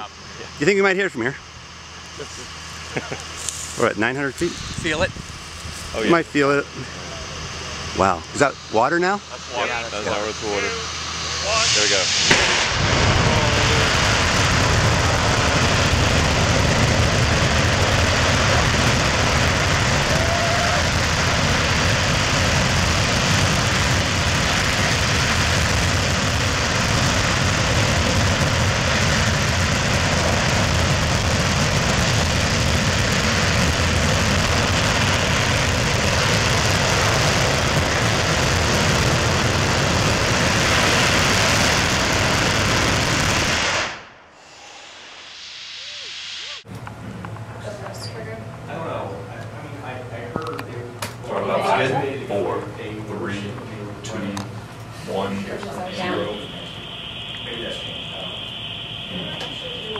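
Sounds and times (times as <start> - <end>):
rocket engine roaring: 0.0 - 47.0, 48.9 - 59.9.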